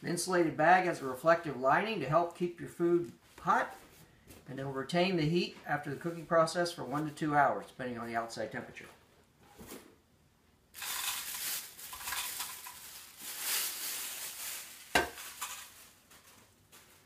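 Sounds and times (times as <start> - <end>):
plastic bag crinkling: 10.7 - 17.0.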